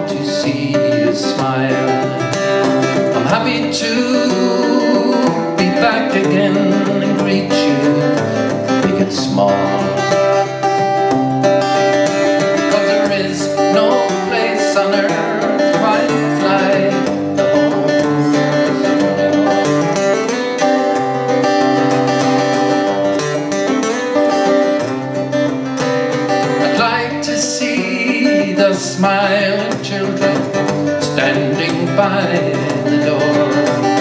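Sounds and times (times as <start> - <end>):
acoustic guitar strumming: 0.0 - 34.0.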